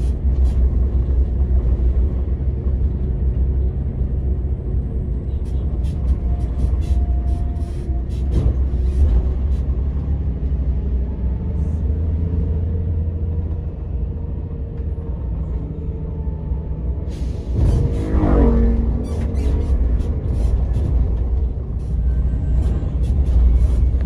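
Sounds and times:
diesel coach engine rumble: 0.0 - 24.0.

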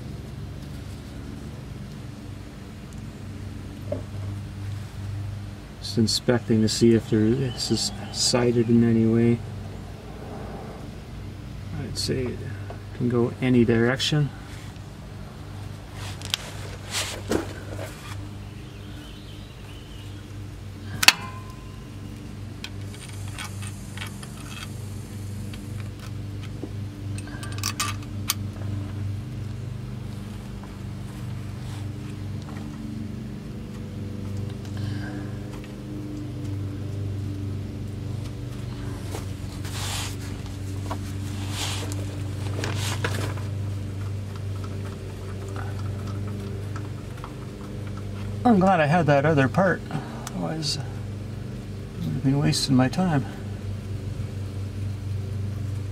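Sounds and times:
steady low hum: 0.0 - 55.9
rustling swishes: 15.9 - 18.2, 38.9 - 43.5
small metal clicks: 27.1 - 28.5
metal tools clinking: 27.2 - 28.1.

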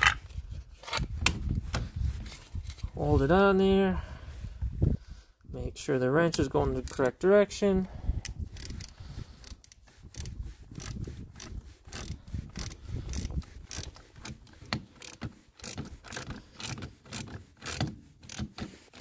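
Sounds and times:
ratchet wrench clicking: 8.2 - 14.4, 15.0 - 19.0.

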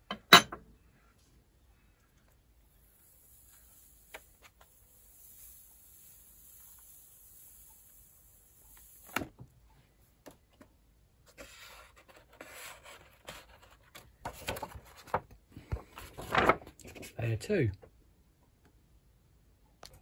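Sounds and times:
paper rustling and crackling: 11.3 - 17.2.

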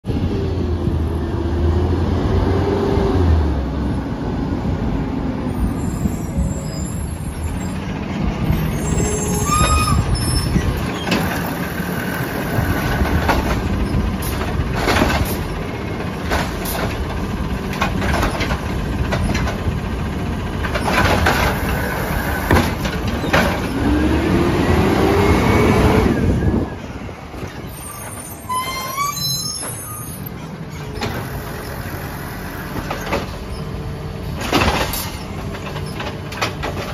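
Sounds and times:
brake squeals: 5.5 - 16.9, 20.7 - 36.9
garbage truck engine running: 6.4 - 28.2, 30.2 - 36.9.

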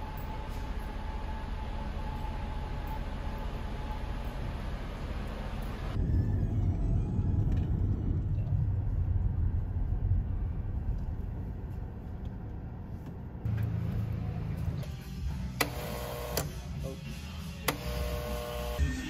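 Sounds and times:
car rumble: 0.0 - 14.8.

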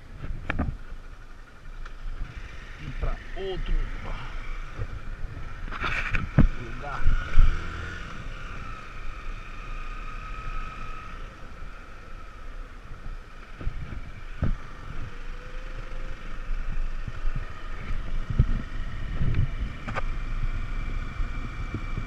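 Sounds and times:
wind noise on microphone: 0.0 - 1.0, 3.7 - 8.8, 12.8 - 22.0
motorcycle engine running: 0.0 - 22.0.

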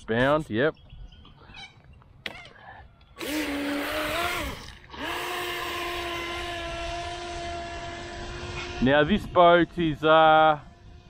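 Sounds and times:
electric motor whining: 3.2 - 11.0.

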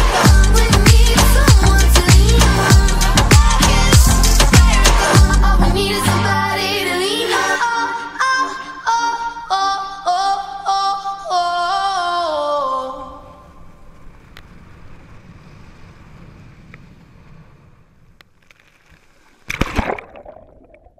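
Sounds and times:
electronic pop music with vocals: 0.0 - 13.4
loud water splash: 19.4 - 20.9.

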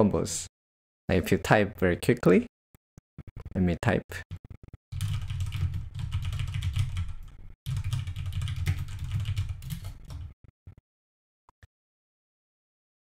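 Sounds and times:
fast typing on keyboard: 4.3 - 10.4.

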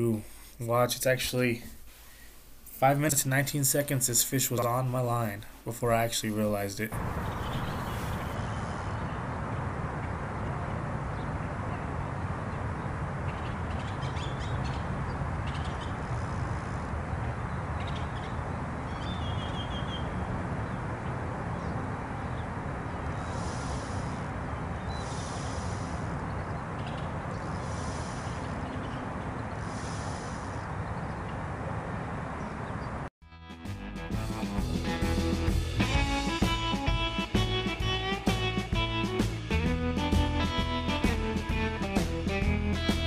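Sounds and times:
birds calling: 6.5 - 9.2, 13.2 - 33.0
steady low rumble: 6.9 - 13.9
short high bird calls: 7.0 - 8.4.

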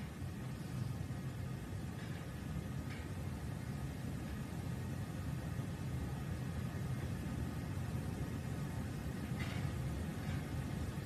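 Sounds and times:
low rumbling hum: 0.0 - 11.0.

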